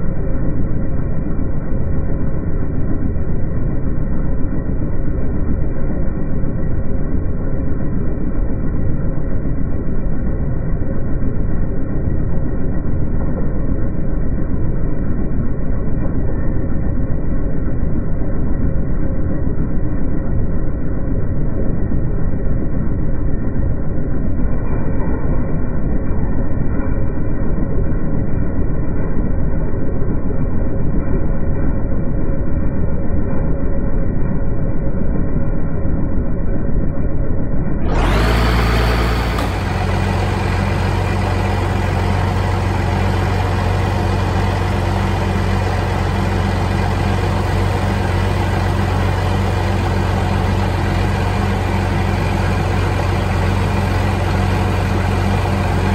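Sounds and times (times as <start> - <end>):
tractor engine running: 0.0 - 55.9
tractor diesel engine rumbling: 37.9 - 55.9.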